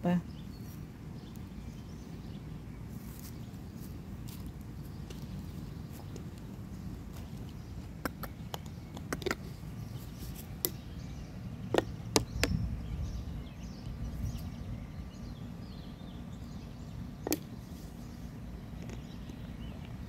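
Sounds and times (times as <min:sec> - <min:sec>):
sharp clicks and taps: 0:07.2 - 0:09.5, 0:11.7 - 0:12.6
wind buffeting microphone: 0:11.2 - 0:15.9.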